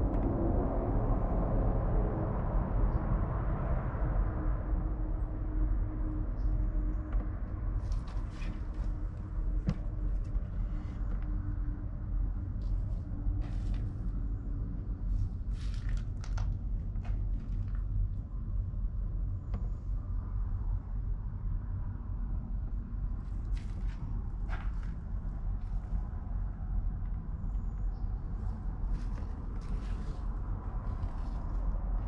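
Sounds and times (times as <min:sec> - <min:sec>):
steady low rumble: 0:00.0 - 0:32.0
rustles of handling: 0:15.1 - 0:17.8, 0:28.8 - 0:32.0.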